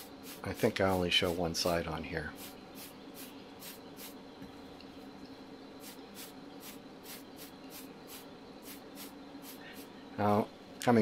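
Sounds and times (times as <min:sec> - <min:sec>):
fan humming: 0:00.0 - 0:11.0
short spray hisses: 0:05.8 - 0:09.9.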